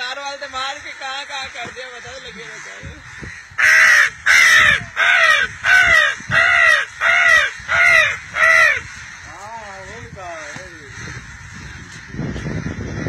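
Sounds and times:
boy imitating crow caws: 2.0s - 9.8s.

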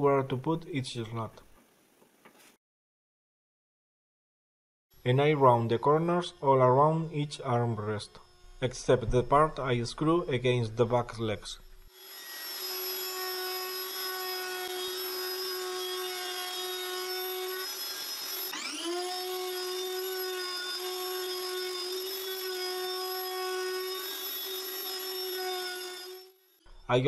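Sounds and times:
router high whine: 5.9s - 26.8s.

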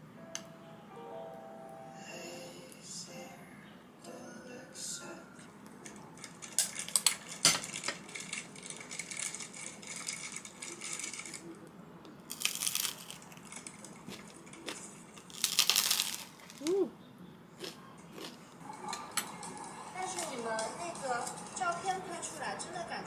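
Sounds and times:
bread crust crackling and crunching: 12.3s - 16.9s.

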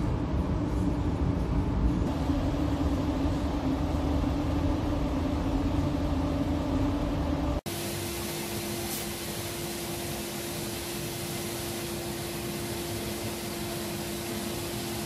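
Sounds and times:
low machine drone: 0.0s - 8.8s
steady mechanical hum: 0.0s - 15.0s.

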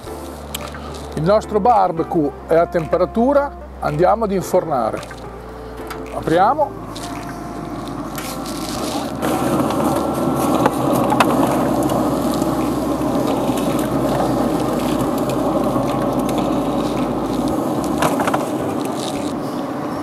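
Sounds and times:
pellet smoker running: 4.7s - 20.0s.

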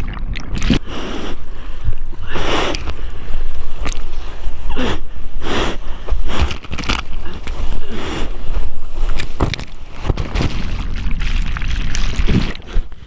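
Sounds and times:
low rumble of water: 0.0s - 4.7s, 8.6s - 13.0s.

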